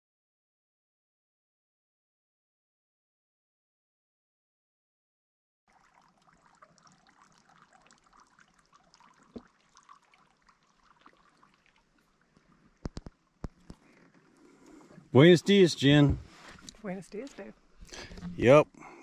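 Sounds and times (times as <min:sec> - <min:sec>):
water trickling and lapping: 0:05.7 - 0:18.6.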